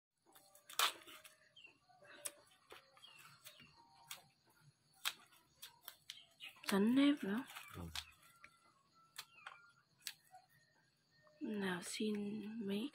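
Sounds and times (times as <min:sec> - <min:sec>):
root rind cracking and tearing: 0:00.4 - 0:01.4, 0:04.9 - 0:10.2
faint bird chirps: 0:00.8 - 0:12.9.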